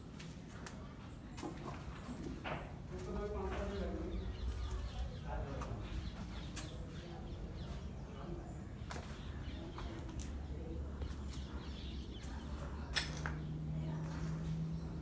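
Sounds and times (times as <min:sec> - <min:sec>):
birds calling faintly: 0:00.0 - 0:15.0.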